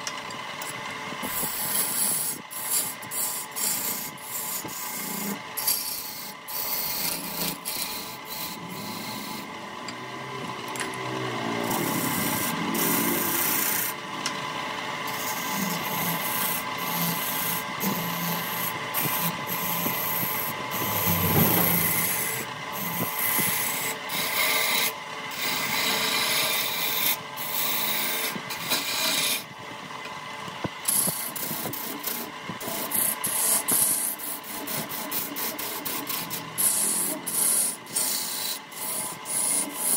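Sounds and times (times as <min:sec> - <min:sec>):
lathe tool scraping wood: 0:00.6 - 0:09.6, 0:11.6 - 0:14.0, 0:15.0 - 0:29.5, 0:30.8 - 0:39.9
steady hum: 0:11.5 - 0:25.9.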